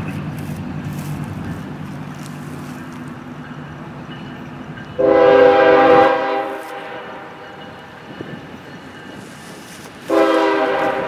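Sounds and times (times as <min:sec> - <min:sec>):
locomotive air horn blast: 0:05.0 - 0:07.4, 0:10.0 - 0:11.0.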